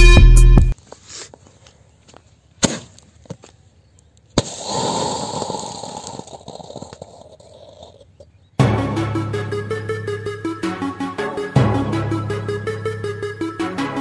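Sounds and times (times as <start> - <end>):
hissing rush of burning charge: 4.4 - 7.9
firework crack: 4.4 - 8.0.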